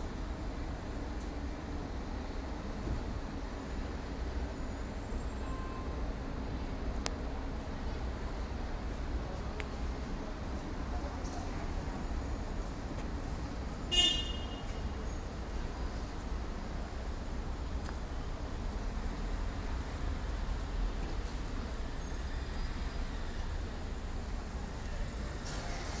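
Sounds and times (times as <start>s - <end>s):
traffic rumble: 0.0s - 26.0s.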